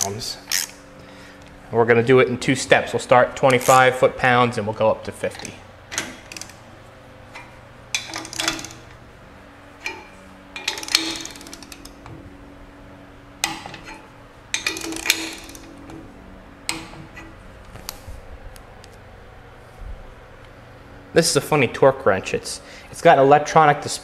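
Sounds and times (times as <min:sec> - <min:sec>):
torque wrench ratchet clicking: 0:00.0 - 0:00.8, 0:05.4 - 0:06.6, 0:07.9 - 0:08.9, 0:09.8 - 0:12.0, 0:14.5 - 0:15.8.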